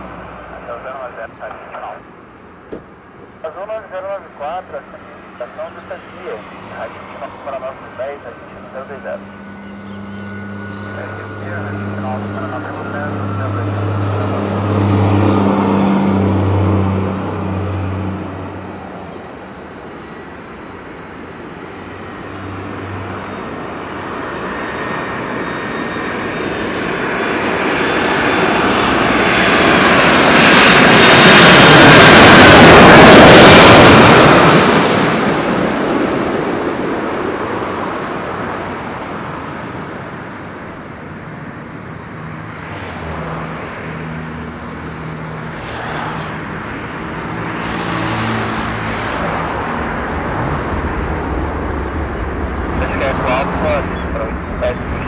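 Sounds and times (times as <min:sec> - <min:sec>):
jet engines roaring overhead: 0:00.0 - 0:55.0.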